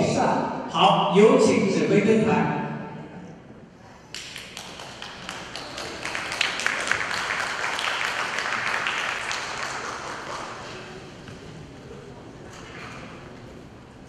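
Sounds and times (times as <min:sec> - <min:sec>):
audience applauding: 0:04.1 - 0:11.2.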